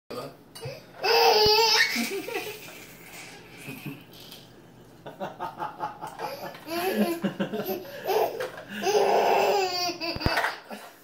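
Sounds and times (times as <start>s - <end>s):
baby laughing: 1.0s - 4.2s, 6.1s - 10.9s.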